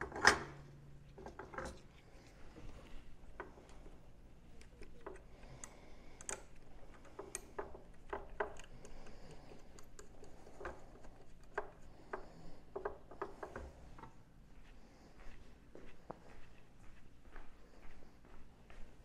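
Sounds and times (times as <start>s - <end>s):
hand tools clicking and tapping: 4.5s - 14.1s.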